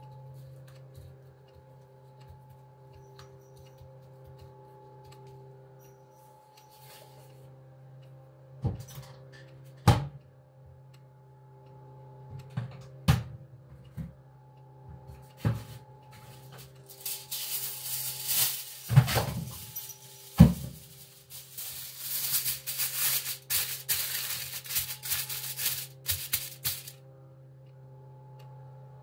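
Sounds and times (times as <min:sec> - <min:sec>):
steady low hum: 0:00.0 - 0:29.0
aluminium foil crinkling: 0:16.5 - 0:27.0.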